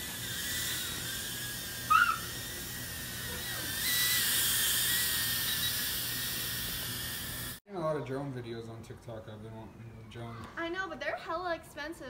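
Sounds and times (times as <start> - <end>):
drone propellers whining: 0.0 - 7.6.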